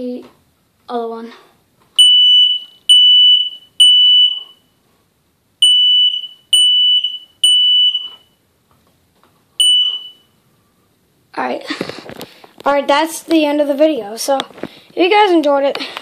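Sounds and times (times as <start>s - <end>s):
smoke alarm beeping: 2.0s - 4.7s, 5.6s - 8.4s, 9.6s - 10.4s.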